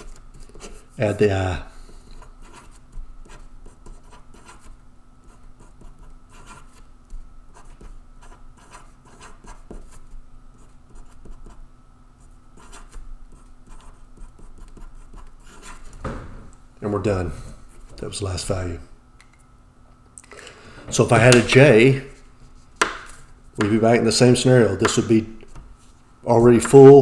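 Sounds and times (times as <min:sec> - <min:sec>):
marker pen scratching on paper: 0:00.0 - 0:01.0, 0:02.1 - 0:11.6, 0:12.2 - 0:15.9
faint hum: 0:00.0 - 0:27.0.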